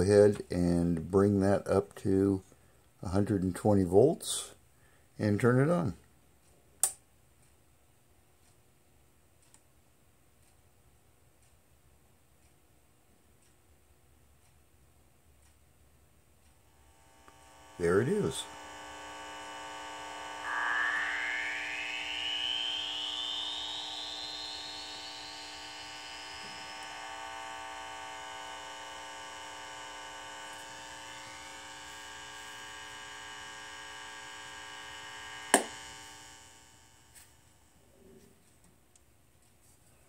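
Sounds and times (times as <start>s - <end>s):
speaker hum: 0.0s - 4.6s, 16.4s - 38.6s
sharp click: 6.8s - 7.0s, 35.5s - 35.8s
rising whistle: 17.2s - 28.7s.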